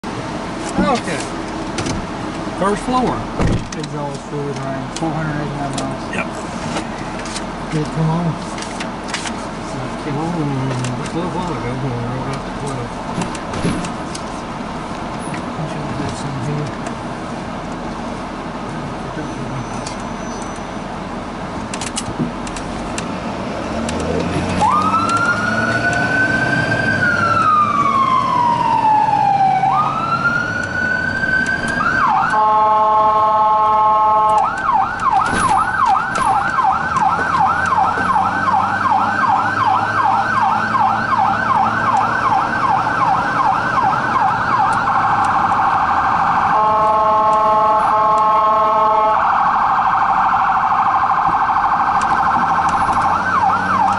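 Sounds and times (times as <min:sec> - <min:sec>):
siren wailing and yelping: 0:24.6 - 0:53.9
horn blast: 0:32.3 - 0:34.5, 0:46.6 - 0:49.2.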